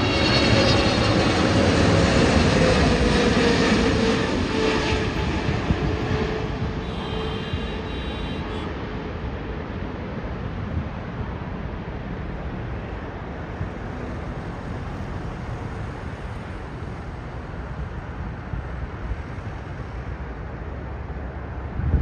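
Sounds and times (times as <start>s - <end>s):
jet engines rumbling: 0.0s - 22.0s
wind on microphone: 3.8s - 7.9s, 21.6s - 22.0s.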